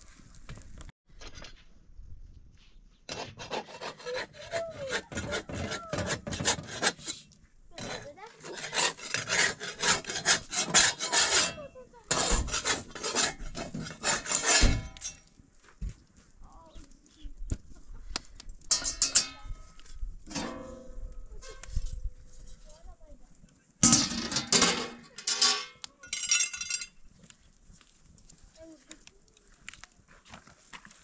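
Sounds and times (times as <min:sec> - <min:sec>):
metal spatula scraping griddle: 0:03.1 - 0:15.2, 0:20.3 - 0:22.7, 0:23.8 - 0:25.8.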